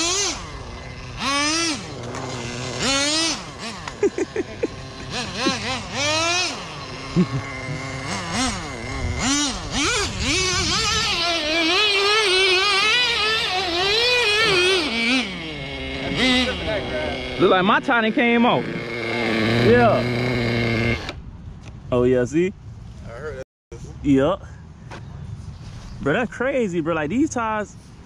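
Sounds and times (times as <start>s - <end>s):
toy car motor revving: 0.0s - 21.2s.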